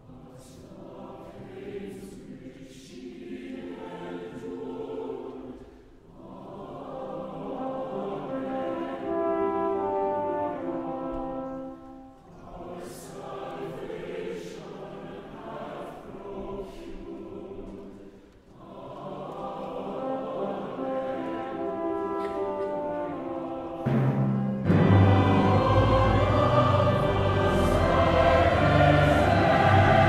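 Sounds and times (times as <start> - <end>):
choir singing a hymn: 0.0 - 30.0
instrumental accompaniment: 20.6 - 30.0.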